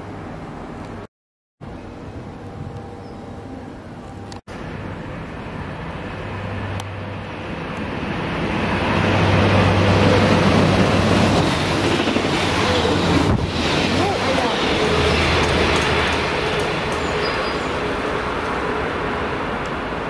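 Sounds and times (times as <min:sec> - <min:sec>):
train passing: 0:01.6 - 0:20.0.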